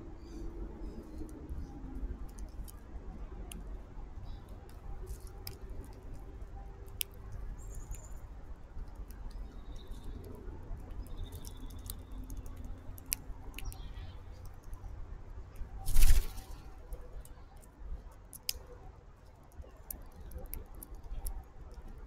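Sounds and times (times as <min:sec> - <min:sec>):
faint bird chirps: 0:07.6 - 0:08.3, 0:09.4 - 0:10.2, 0:11.0 - 0:12.3, 0:13.5 - 0:14.4.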